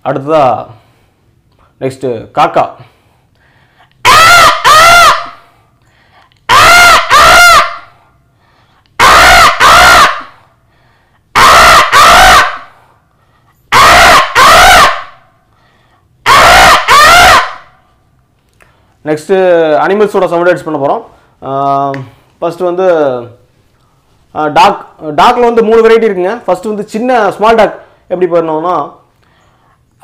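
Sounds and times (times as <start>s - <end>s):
man imitating crow caws: 4.0s - 5.4s, 6.5s - 7.7s, 9.0s - 10.2s, 11.4s - 12.6s, 13.7s - 15.0s, 16.3s - 17.5s.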